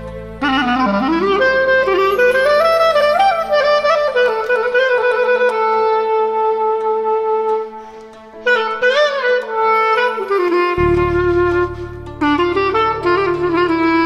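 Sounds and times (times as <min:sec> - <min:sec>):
clarinet folk melody: 0:00.0 - 0:14.0
low drone note: 0:10.0 - 0:14.0.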